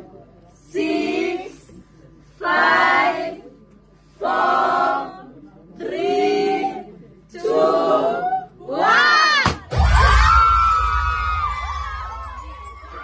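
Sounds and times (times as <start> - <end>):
crowd chanting in unison: 4.2 - 9.4.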